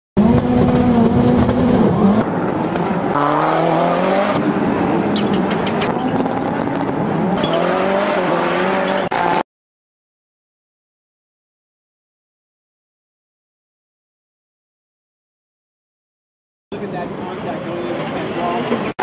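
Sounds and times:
race car engines revving: 0.2s - 9.4s.

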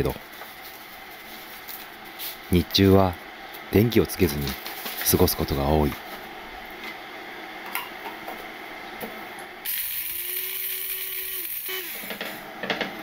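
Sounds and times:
coffee grinder whirring: 9.6s - 12.5s.

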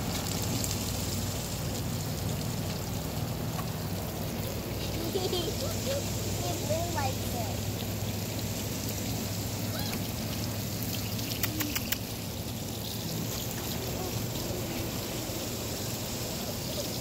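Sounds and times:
hose spraying water: 0.0s - 17.0s
short run of clicks: 11.3s - 12.1s.

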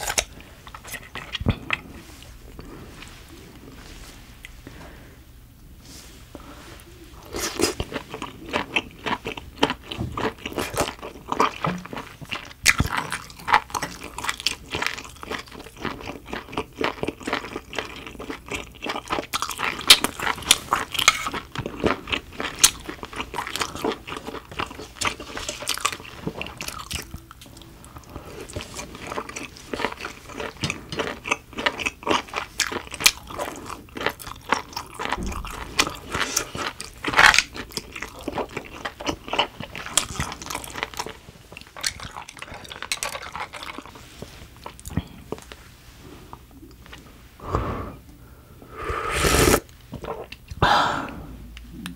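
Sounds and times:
wet crunchy chewing: 0.0s - 3.1s, 7.3s - 45.6s.

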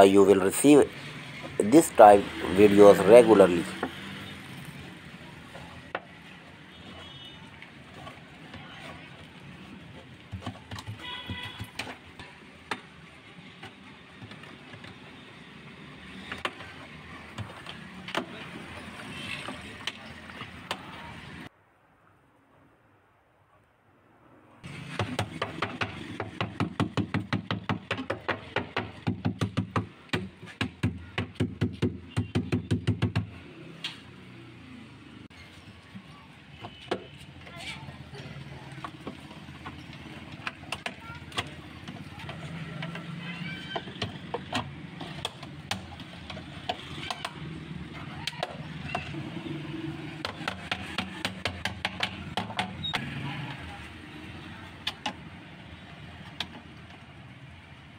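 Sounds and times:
wooden mallet knocking: 25.0s - 33.3s, 50.2s - 52.8s.

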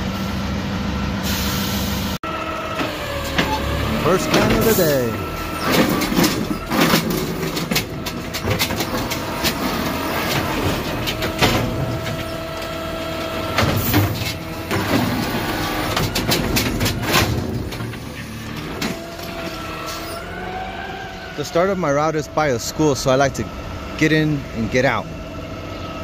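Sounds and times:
garbage truck engine running: 0.0s - 26.0s
hydraulics whining: 0.0s - 26.0s
trash cart knocking and clattering: 2.7s - 20.3s.

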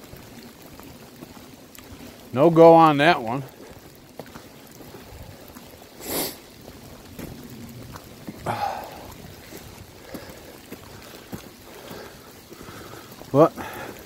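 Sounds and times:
faint footsteps on wet dirt: 0.0s - 14.0s
rain hissing: 0.0s - 14.0s
heavy breaths: 3.5s - 6.6s, 8.3s - 14.0s.

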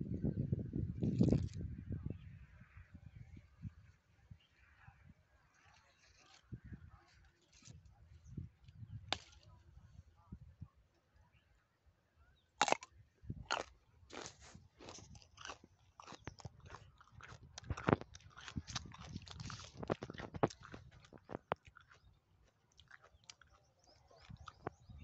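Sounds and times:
leaves and twigs brushing microphone: 5.5s - 9.9s.

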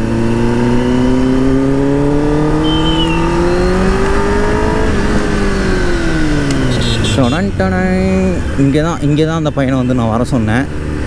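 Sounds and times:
motorcycle engine accelerating: 0.0s - 8.3s.

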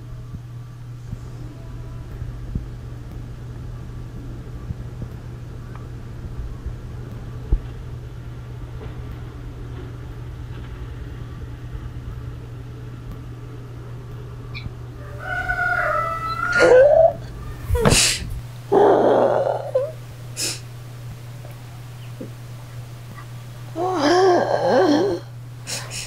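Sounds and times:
steady low hum: 0.0s - 26.0s
rooster crowing: 14.9s - 17.8s.

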